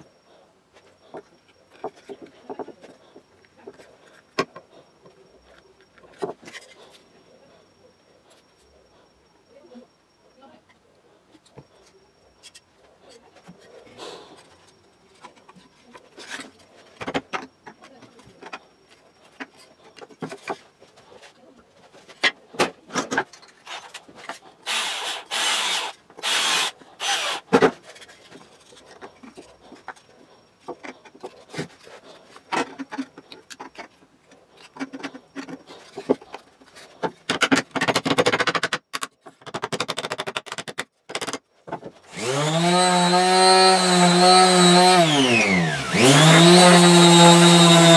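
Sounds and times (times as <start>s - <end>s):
wood rubbing and scraping: 41.8s - 47.9s.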